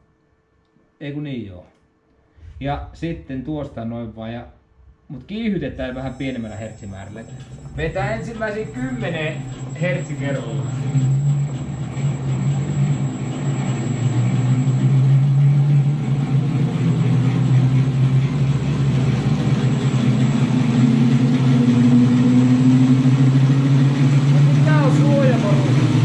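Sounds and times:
electric motor hum: 5.7 - 26.0.

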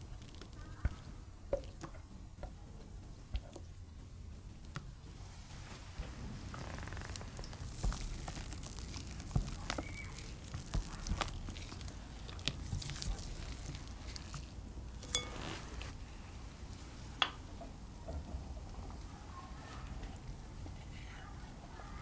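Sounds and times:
spatula squishing and scraping batter: 7.2 - 16.0.

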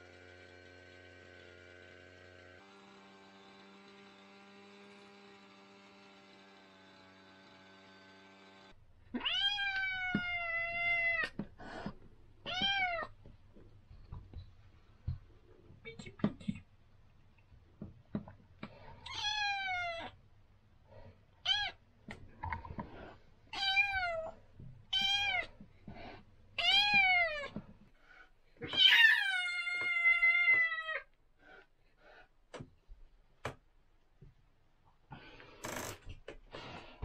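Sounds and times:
kitten meowing: 9.1 - 11.4, 19.0 - 20.2, 21.4 - 21.8, 23.6 - 24.3, 24.9 - 25.5, 28.6 - 31.1.

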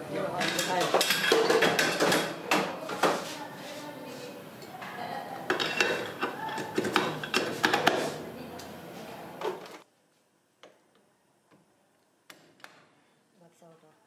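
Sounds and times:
workshop noise: 0.0 - 13.0.

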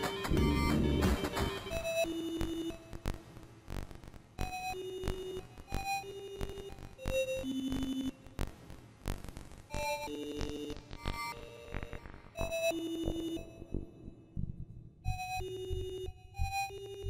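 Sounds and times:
sparse synthesizer notes: 0.0 - 1.8.

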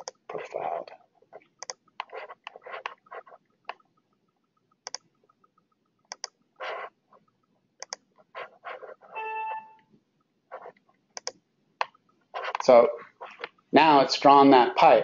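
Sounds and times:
computer mouse clicking: 0.0 - 9.1, 10.5 - 12.7.

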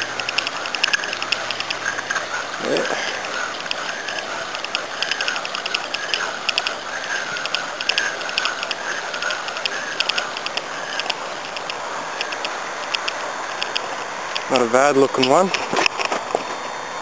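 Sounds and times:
fishing reel clicking: 0.0 - 2.3, 3.1 - 13.8.

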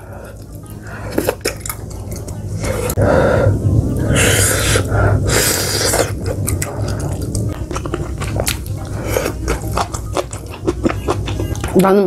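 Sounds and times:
mouth eating sounds: 4.1 - 11.9.

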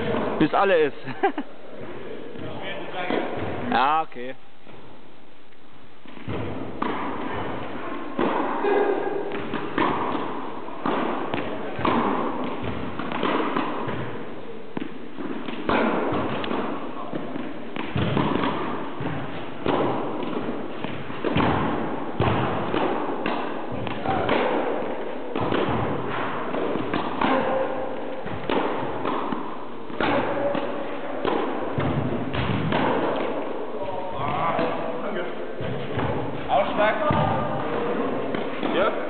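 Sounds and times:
tennis ball bouncing on court: 6.0 - 33.6, 35.6 - 39.0
tennis ball struck by rackets: 6.0 - 33.7, 35.6 - 36.4, 37.0 - 39.0.

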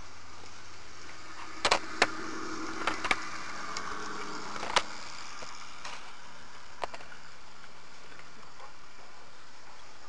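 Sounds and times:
model train rumbling: 0.0 - 8.0
wheels clicking over rail joints: 1.0 - 9.8.

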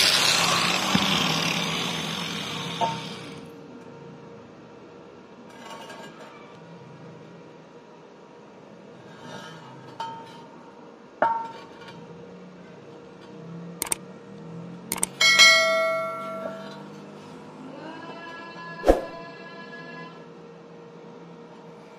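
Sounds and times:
metallic clinks and clicks: 14.9 - 16.8
bell-like ring: 15.2 - 16.9.

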